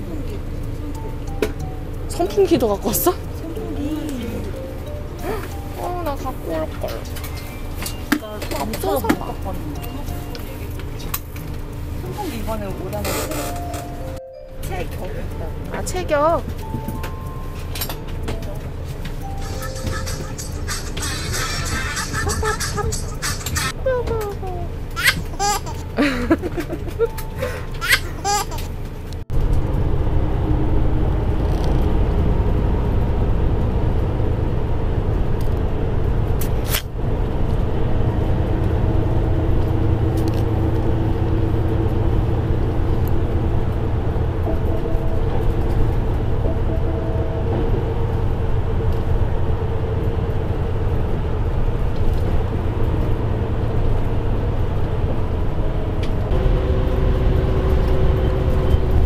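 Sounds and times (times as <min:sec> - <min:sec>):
coach engine and road noise: 0:00.0 - 0:59.0.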